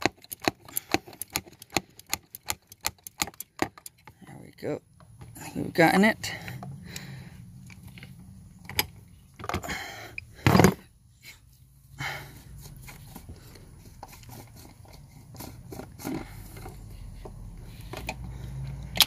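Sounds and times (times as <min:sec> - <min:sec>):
wrench clicking and scraping on plastic cap: 0:00.0 - 0:04.2.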